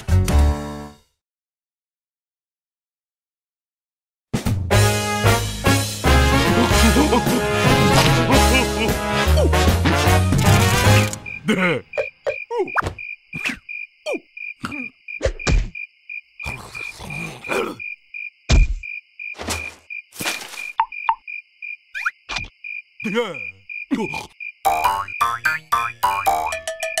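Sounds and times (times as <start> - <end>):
comic character noises: 6.2 - 15.5
crickets chirping: 10.4 - 26.6.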